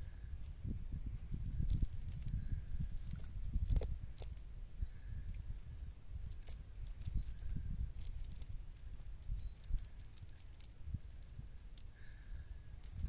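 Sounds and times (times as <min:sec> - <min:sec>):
fishing net clicks and rustles: 0:01.4 - 0:04.5, 0:05.6 - 0:13.0.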